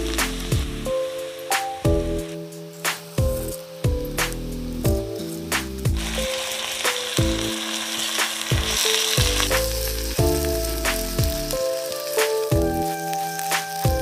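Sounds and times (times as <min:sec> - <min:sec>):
background music with a beat: 0:00.0 - 0:14.0
rice sizzling in a pan: 0:00.0 - 0:14.0.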